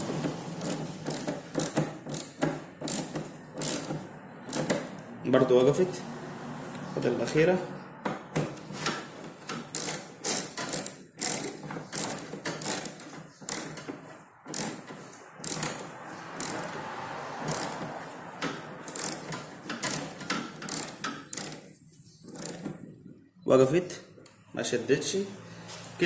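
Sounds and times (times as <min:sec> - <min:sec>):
ratchet wrench clicking: 0:00.2 - 0:05.0, 0:08.8 - 0:21.7, 0:22.3 - 0:22.6.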